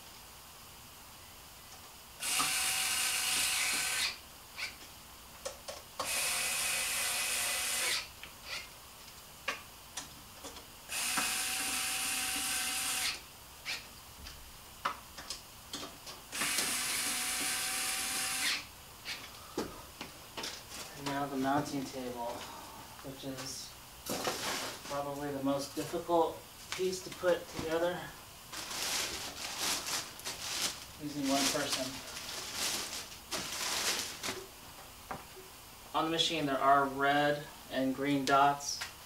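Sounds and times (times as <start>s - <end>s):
cordless drill running: 2.2s - 4.2s, 6.0s - 8.1s, 10.9s - 13.2s, 16.3s - 18.7s.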